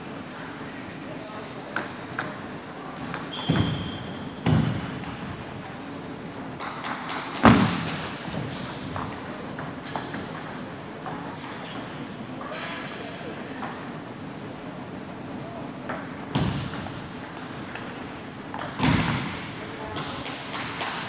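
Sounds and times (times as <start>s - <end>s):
shoes squeaking on wooden floor: 3.3s - 4.0s, 8.2s - 9.2s.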